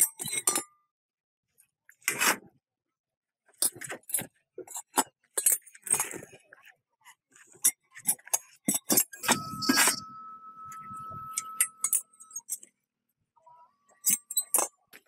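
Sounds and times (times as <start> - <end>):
hum with high whine: 9.3 - 12.4.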